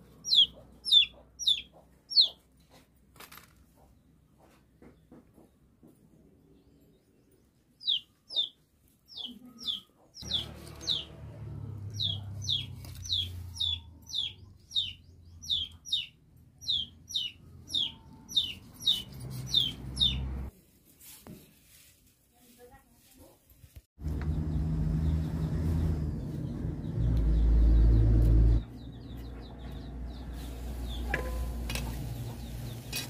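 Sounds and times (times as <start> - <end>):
chick peeping: 0.2 - 2.8, 7.8 - 11.2, 11.8 - 20.3.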